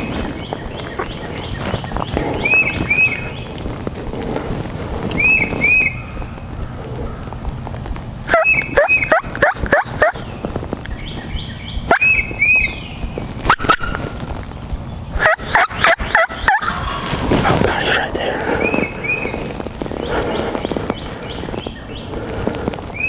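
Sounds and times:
high paired calls: 0:00.0 - 0:03.8, 0:08.3 - 0:10.3, 0:15.0 - 0:22.2
turkey gobbling: 0:00.0 - 0:04.4, 0:08.3 - 0:10.2, 0:13.4 - 0:14.3, 0:15.2 - 0:23.0.

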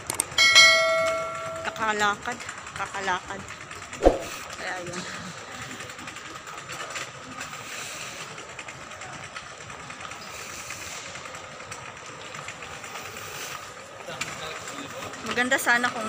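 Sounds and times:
steady hum: 0:00.4 - 0:02.1
faint high tone: 0:00.6 - 0:01.8.

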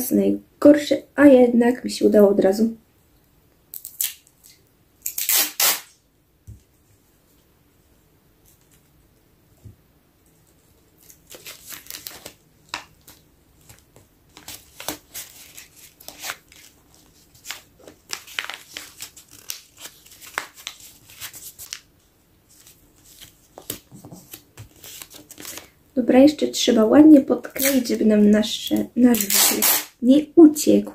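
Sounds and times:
paper folding and crinkling: 0:10.2 - 0:25.8.

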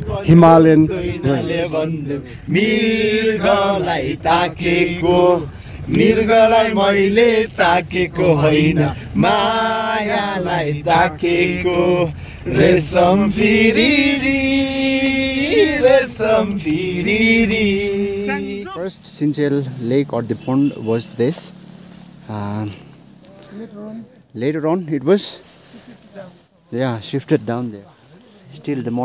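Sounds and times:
person chanting: 0:00.0 - 0:19.1.

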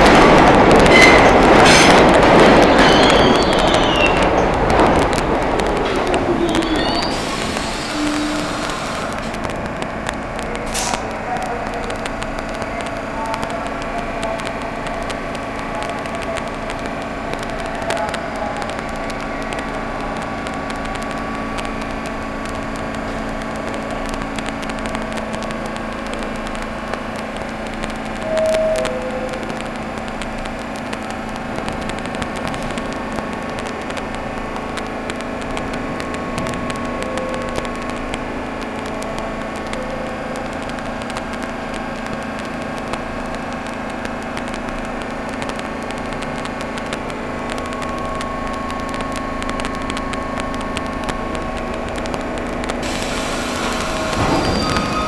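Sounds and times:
subway train equipment hum: 0:00.0 - 0:55.0
air hiss: 0:52.8 - 0:55.0.

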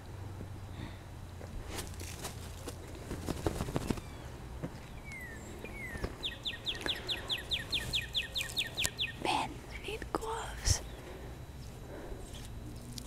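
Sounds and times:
footsteps crunching in snow: 0:01.6 - 0:04.1
bird trilling: 0:03.6 - 0:09.3.

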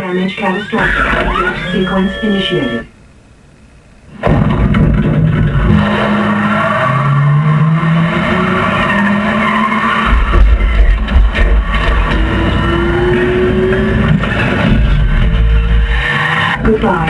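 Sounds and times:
tyre squeal: 0:00.2 - 0:02.9
car engine revving: 0:04.2 - 0:17.0.

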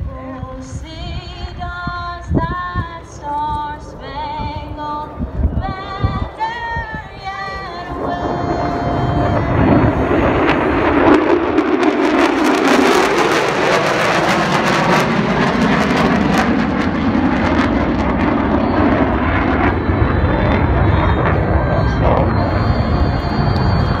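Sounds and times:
fighter jets roaring overhead: 0:02.9 - 0:24.0.

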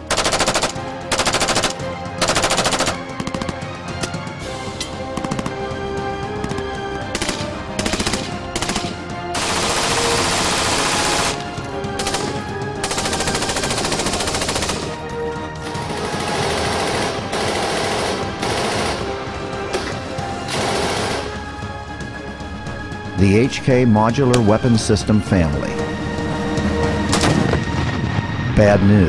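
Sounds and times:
automatic rifle fire: 0:00.0 - 0:03.0, 0:07.2 - 0:11.4, 0:20.5 - 0:21.4.

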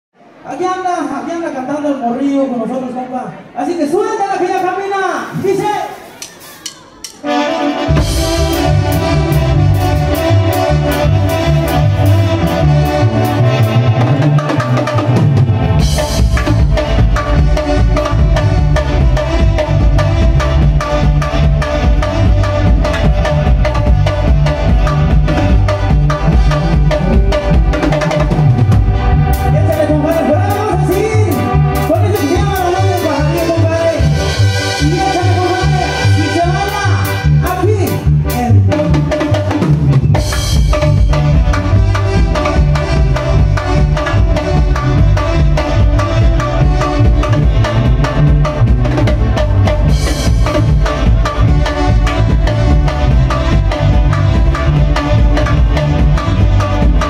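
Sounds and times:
band playing latin dance music: 0:00.2 - 0:57.0
keyboards: 0:00.2 - 0:57.0
drum and percussion beat: 0:05.4 - 0:07.3, 0:07.9 - 0:35.8, 0:38.3 - 0:57.0
bass line: 0:07.2 - 0:57.0
wavering melody line: 0:15.4 - 0:35.2.

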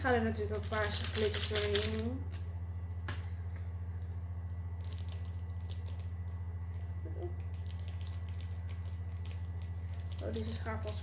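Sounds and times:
steady low hum: 0:00.0 - 0:11.0
scissors snipping plastic sachet: 0:07.4 - 0:11.0.

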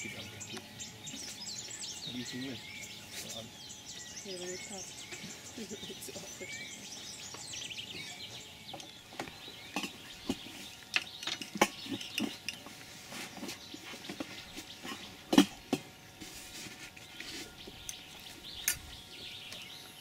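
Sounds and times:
small birds chirping: 0:00.0 - 0:20.0
sharp clicks and knocks: 0:13.4 - 0:15.9.

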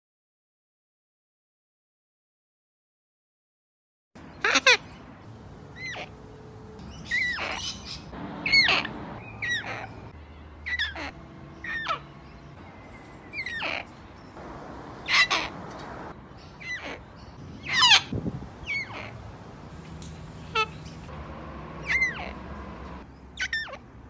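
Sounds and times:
cockatoos squawking: 0:04.4 - 0:05.0, 0:05.7 - 0:06.2, 0:06.9 - 0:19.2, 0:19.8 - 0:23.8.

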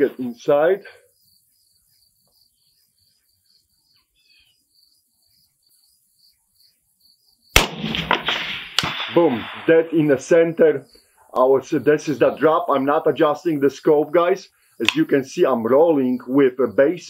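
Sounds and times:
insects chirping: 0:00.0 - 0:17.0
rifle shot echoing: 0:07.6 - 0:10.2.

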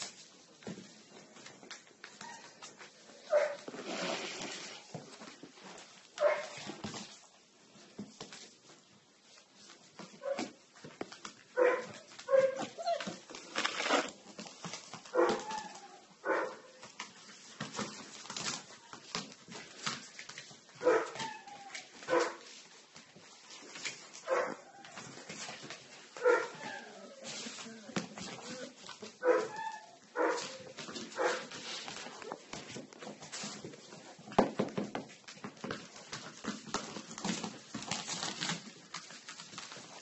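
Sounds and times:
small clicks and shuffling: 0:00.0 - 0:40.0
dog yipping and whimpering: 0:11.6 - 0:13.2, 0:20.8 - 0:22.3, 0:29.2 - 0:31.4.

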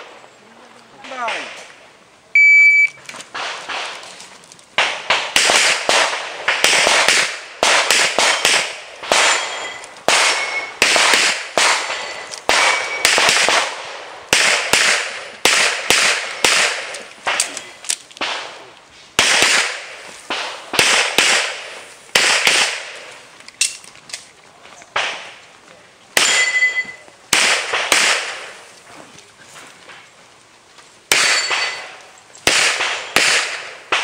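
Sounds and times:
rapid handgun shots: 0:03.3 - 0:04.0, 0:04.8 - 0:17.6, 0:18.2 - 0:18.6, 0:19.2 - 0:23.1, 0:25.0 - 0:25.4, 0:27.3 - 0:28.6, 0:31.1 - 0:34.0.

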